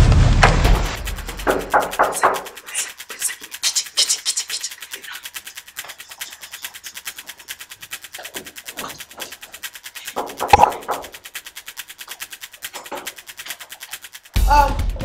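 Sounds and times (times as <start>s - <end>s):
rapid even ticking: 0.1s - 15.0s
scratchy rubbing hisses: 2.0s - 5.2s.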